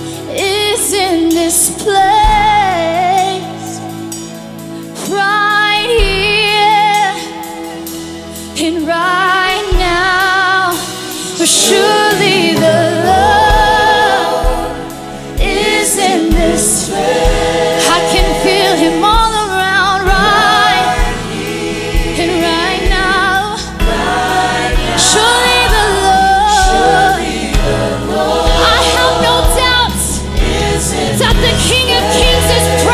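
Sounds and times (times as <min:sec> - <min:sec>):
group singing gospel: 0:09.4 - 0:32.9
low drum beat: 0:12.5 - 0:32.9.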